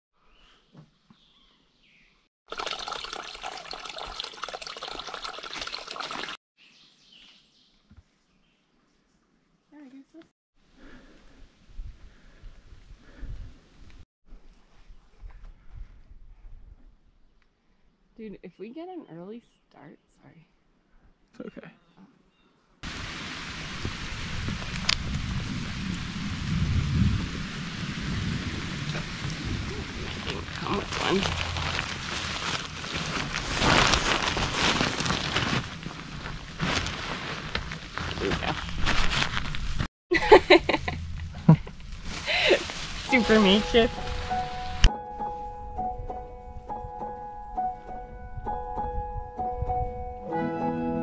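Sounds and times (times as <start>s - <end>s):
water trickling and splashing: 2.5s - 6.4s, 22.8s - 37.4s
rain hiss: 22.8s - 32.6s, 41.6s - 44.9s
low rumble: 40.5s - 44.2s.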